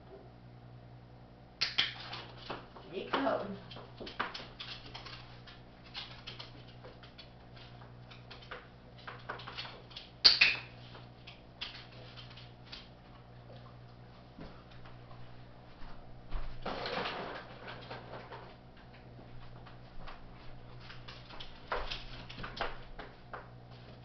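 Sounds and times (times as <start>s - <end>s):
dog claws tapping on wooden floor: 1.6s - 13.8s, 20.8s - 23.6s.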